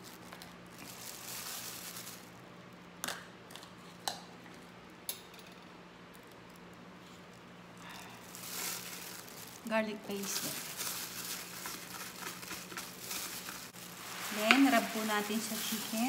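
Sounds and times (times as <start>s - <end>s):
plastic glove crinkling: 0.0s - 2.5s, 7.0s - 16.0s
rustling and squishing meat: 0.0s - 2.8s, 6.3s - 16.0s.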